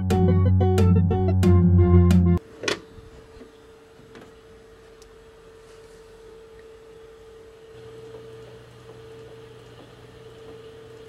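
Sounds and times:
lower hum: 0.0 - 2.4
faint electrical hum: 2.4 - 11.0.

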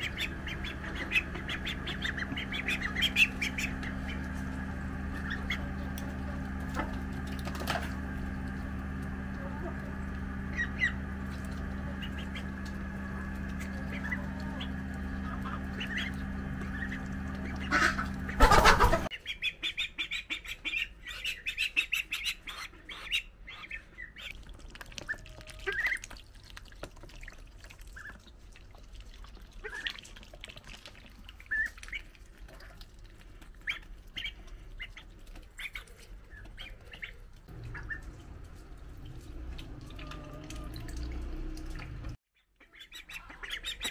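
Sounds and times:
steady hum: 0.0 - 19.1
ducklings squawking and peeping: 0.0 - 27.1, 27.8 - 43.9
bills clicking and splashing water: 24.3 - 42.2.

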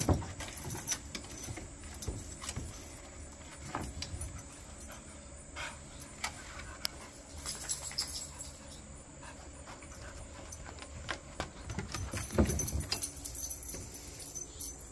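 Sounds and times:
dog steps on wooden deck: 0.0 - 4.5
dog panting: 8.2 - 11.4.

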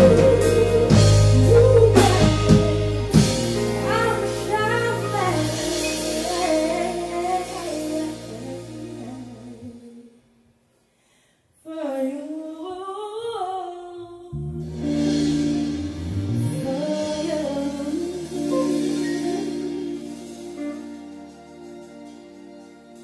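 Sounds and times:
band playing low chords: 0.0 - 9.6, 14.4 - 23.0
woman singing: 0.0 - 10.2, 11.6 - 15.6, 16.4 - 21.2.

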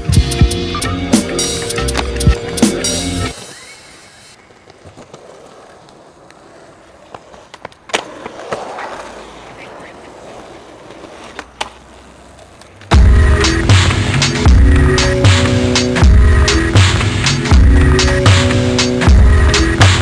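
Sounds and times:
loud music: 0.0 - 3.3, 13.0 - 20.0
skateboard rolling on pavement: 0.0 - 20.0
skateboard tail popping clicks: 4.6 - 10.1, 10.8 - 12.9.

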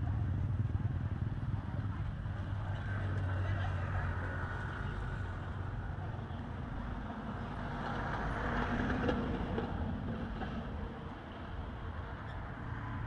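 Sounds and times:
low rumble of road traffic: 0.0 - 13.0.

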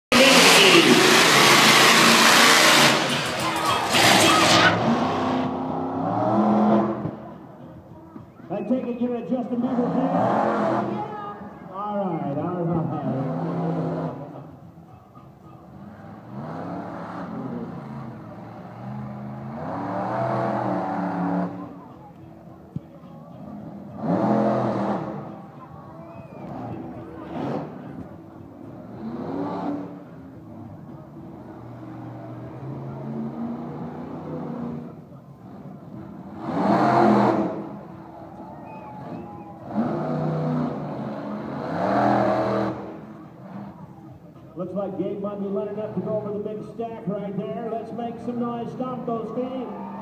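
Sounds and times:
monster truck engine revving: 0.1 - 7.3, 9.6 - 11.1, 13.0 - 14.5, 15.6 - 21.9, 23.5 - 44.1.

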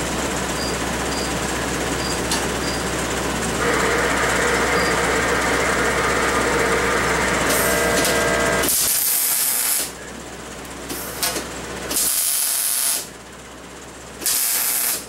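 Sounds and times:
loud steady machine noise: 0.0 - 15.0
arc welding crackling hiss: 8.6 - 9.9, 11.9 - 13.1, 14.2 - 15.0.

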